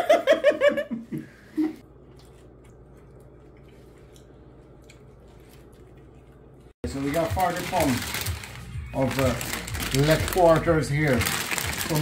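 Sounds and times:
man laughing: 0:00.0 - 0:01.8.

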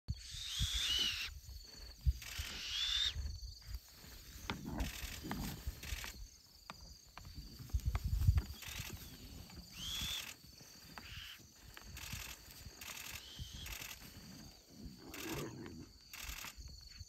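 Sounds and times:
wind on microphone: 0:07.3 - 0:10.3.

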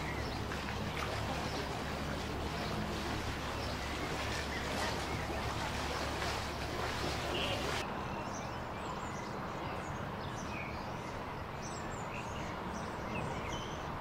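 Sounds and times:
low engine hum: 0:00.0 - 0:07.8
splashing water: 0:00.0 - 0:07.8
birds chirping: 0:00.0 - 0:13.9.

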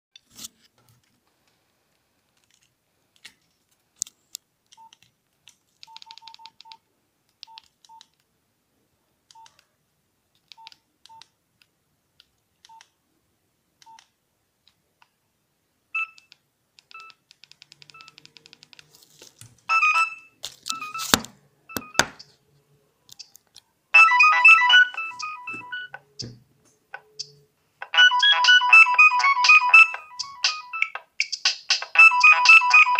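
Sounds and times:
phone key beeps: 0:05.8 - 0:06.8, 0:16.0 - 0:18.7, 0:19.7 - 0:22.3, 0:24.0 - 0:26.0, 0:27.2 - 0:31.0
phone clicks: 0:19.7 - 0:22.3
ringtone melody: 0:19.7 - 0:22.3, 0:24.0 - 0:26.3, 0:27.1 - 0:32.9.

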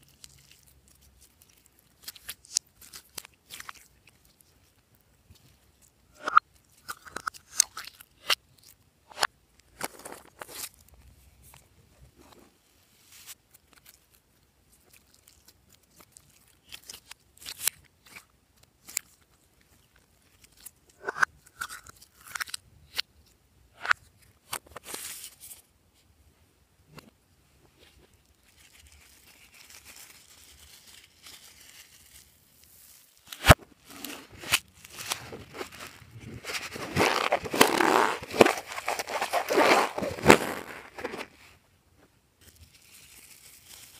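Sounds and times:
faint steady rustle: 0:24.0 - 0:37.6, 0:38.2 - 0:43.9.

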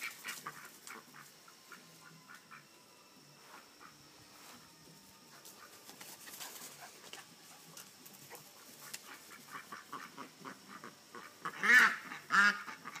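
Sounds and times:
poultry clucking: 0:00.0 - 0:02.7, 0:06.7 - 0:13.0.

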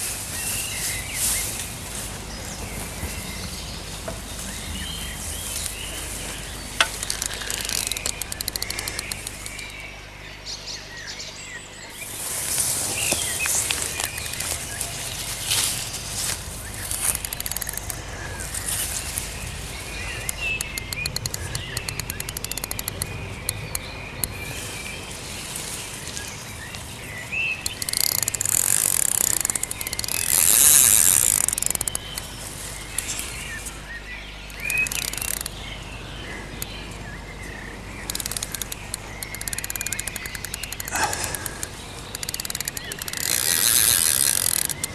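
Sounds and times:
small birds chirping: 0:00.0 - 0:44.9
rapid ticking: 0:05.2 - 0:09.9, 0:13.5 - 0:15.6, 0:16.2 - 0:24.5, 0:27.4 - 0:33.3, 0:34.4 - 0:35.8, 0:37.9 - 0:44.9.

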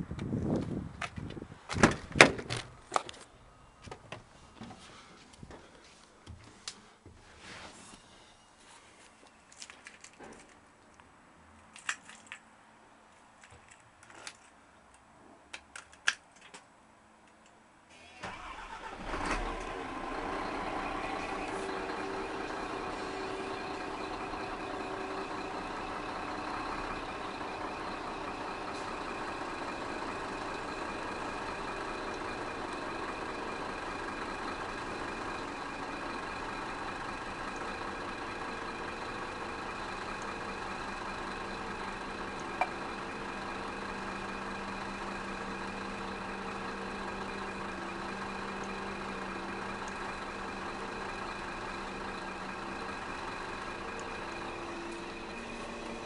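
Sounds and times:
truck diesel engine starting and idling: 0:17.9 - 0:56.0.

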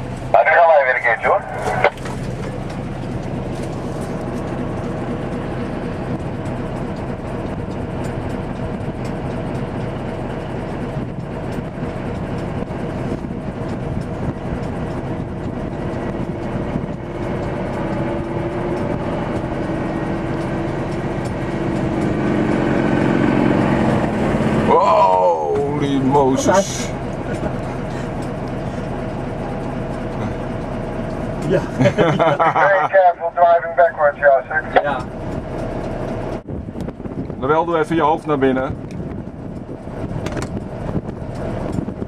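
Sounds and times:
truck engine droning: 0:00.0 - 0:42.0
whining note: 0:14.2 - 0:31.7.

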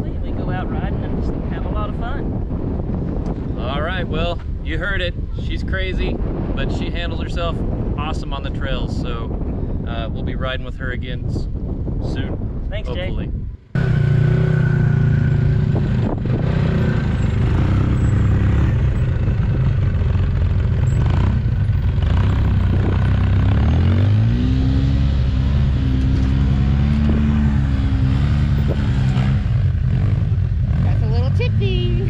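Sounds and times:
utility vehicle engines droning: 0:12.2 - 0:32.0
engine revving up: 0:13.8 - 0:18.9, 0:20.9 - 0:31.9.

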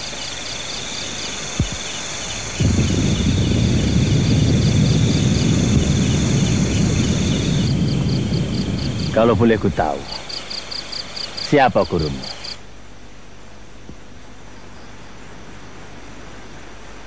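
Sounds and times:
crickets chirping: 0:00.0 - 0:17.0
loud low rumbling: 0:01.6 - 0:10.4.

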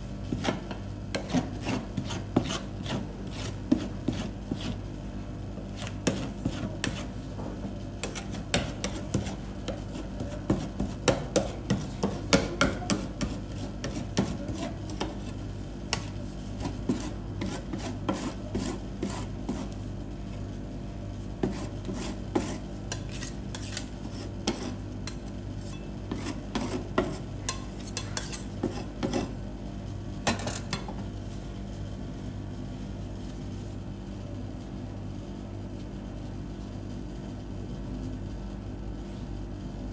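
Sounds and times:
steady low hum: 0:00.0 - 0:39.9
metal spatula scraping on steel: 0:21.4 - 0:29.4.

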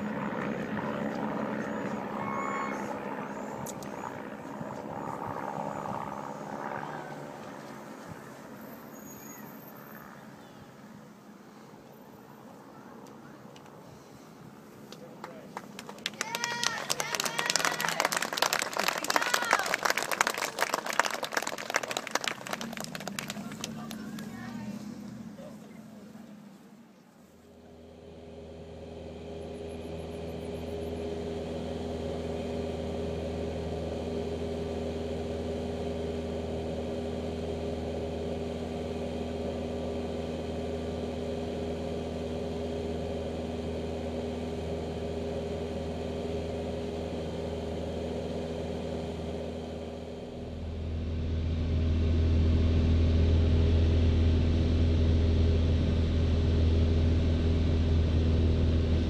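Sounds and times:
light airplane engine droning: 0:00.0 - 0:59.0.

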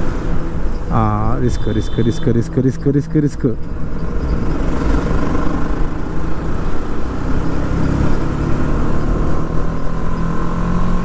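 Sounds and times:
motorcycle engine running: 0:03.6 - 0:07.6.

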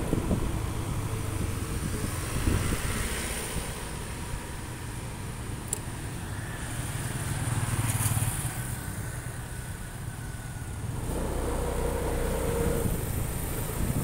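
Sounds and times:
scooters and motorcycles passing: 0:00.0 - 0:14.0
steady engine hum: 0:00.0 - 0:14.0.

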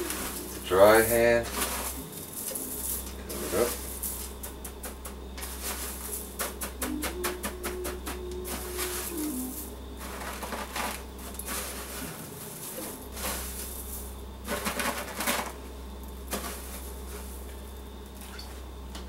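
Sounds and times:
cornflakes crunching in metal tray: 0:00.0 - 0:07.1, 0:07.7 - 0:15.6.

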